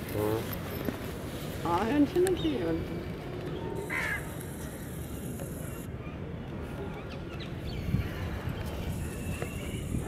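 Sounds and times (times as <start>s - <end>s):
crow cawing: 3.8s - 4.4s.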